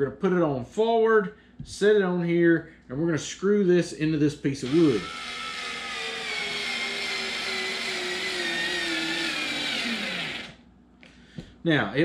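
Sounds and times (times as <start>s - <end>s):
cordless screwdriver motor whine: 4.8s - 10.6s.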